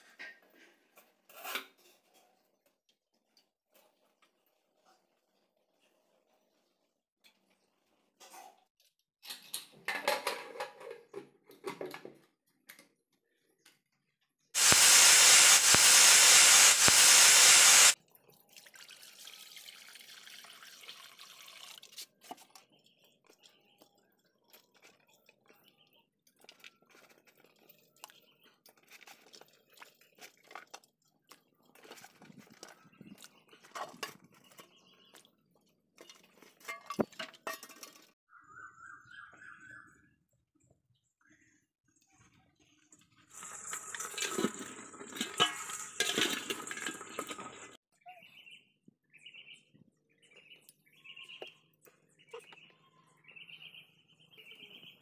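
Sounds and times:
water pouring into wok: 14.6 - 22.0, 43.3 - 47.8
vegetables clinking and splashing: 14.6 - 38.2, 43.3 - 47.8.

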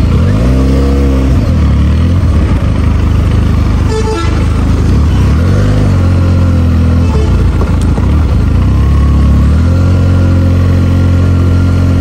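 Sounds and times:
motorcycle engine at low revs: 0.0 - 12.0
horn toot: 3.8 - 4.5, 6.9 - 7.6.

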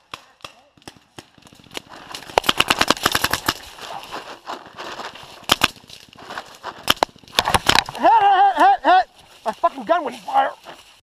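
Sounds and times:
paintball markers firing: 0.0 - 3.7, 5.4 - 5.9, 6.8 - 8.0.

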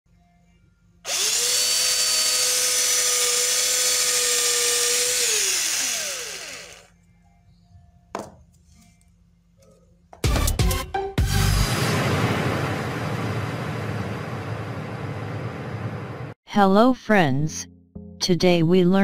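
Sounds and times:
cordless drill boring wood: 1.1 - 6.9.

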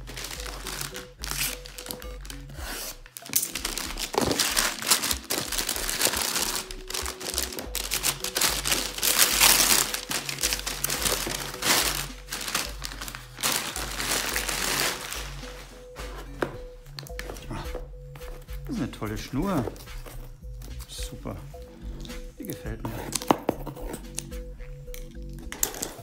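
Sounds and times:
paper rustling and crumpling: 0.0 - 16.5.

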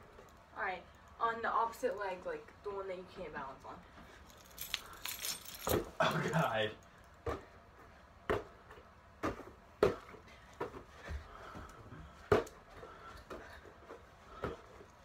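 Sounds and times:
ball knocks and body thumps: 5.6 - 6.0, 7.2 - 7.6, 8.2 - 11.3, 12.1 - 13.4.

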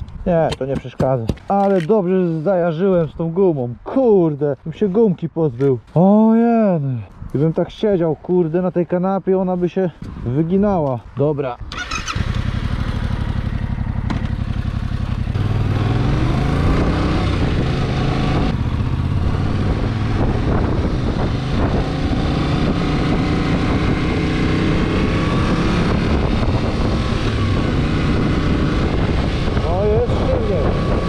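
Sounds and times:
motorcycle engine idling and accelerating: 10.0 - 31.0.

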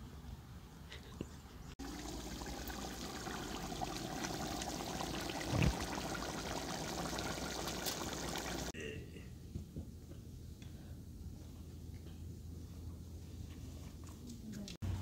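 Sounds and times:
stew bubbling: 1.8 - 8.8.

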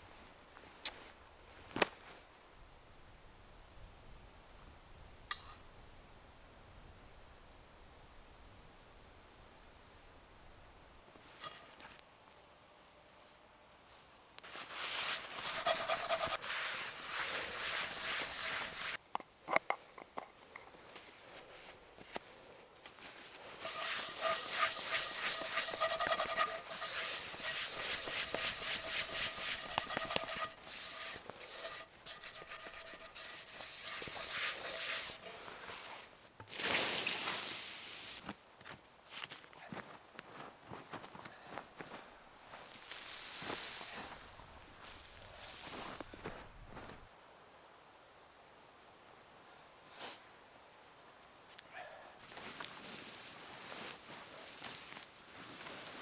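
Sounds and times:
paper towel scrubbing skillet: 14.5 - 19.0, 23.4 - 36.0
short loud hiss: 36.5 - 38.2, 42.7 - 46.0.

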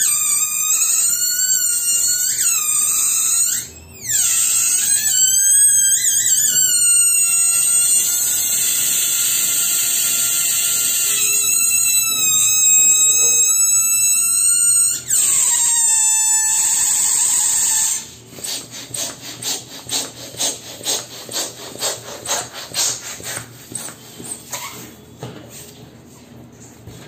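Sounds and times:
air squealing out of balloon: 0.0 - 18.7
hand balloon pump strokes: 0.0 - 25.0.

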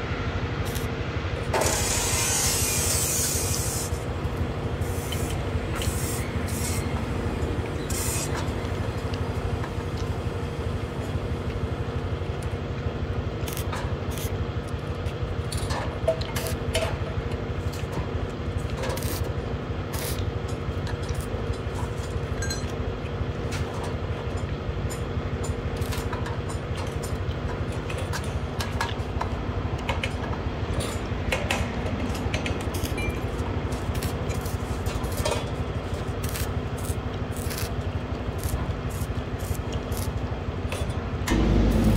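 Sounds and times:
welding arc crackle: 13.4 - 14.4, 19.0 - 19.3, 19.9 - 20.2, 25.8 - 26.1, 32.7 - 33.0, 33.8 - 40.3, 41.3 - 41.9
electrical hum: 31.9 - 41.9.

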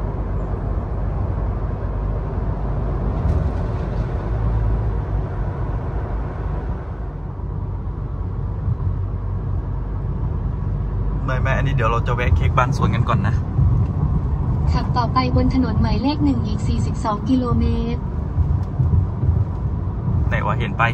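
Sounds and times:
road and engine rumble in cabin: 0.0 - 20.9.

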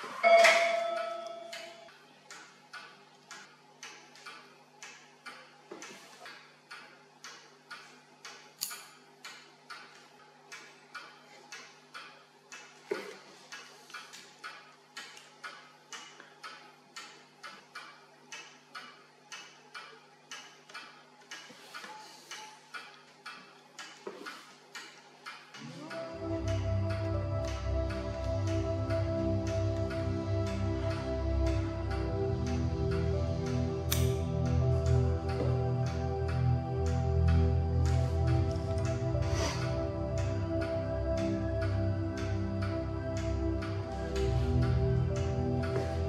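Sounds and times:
clock ticking: 0.0 - 46.0
faint low drone: 25.6 - 46.0.

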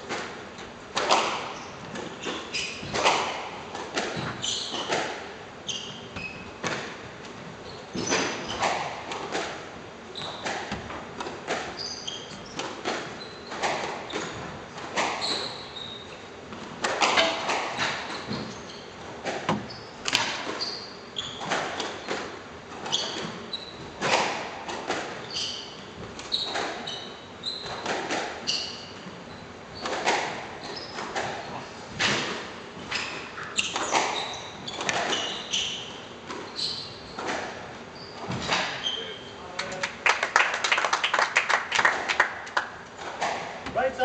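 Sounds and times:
squash ball hits: 0.9 - 2.2
shoes squeaking on wooden floor: 1.1 - 9.2, 10.0 - 16.3, 17.0 - 39.4.

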